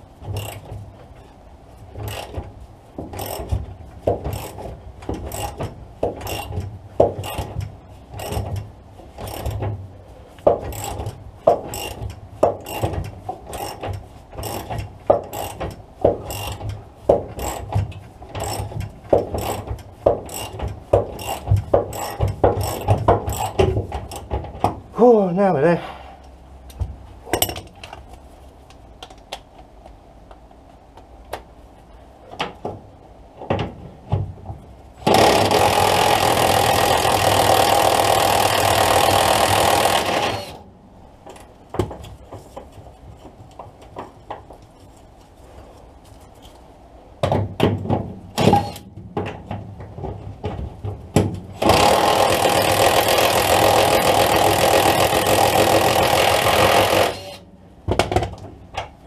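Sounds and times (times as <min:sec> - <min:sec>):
power tool running: 0:35.0 - 0:40.6, 0:51.6 - 0:57.4.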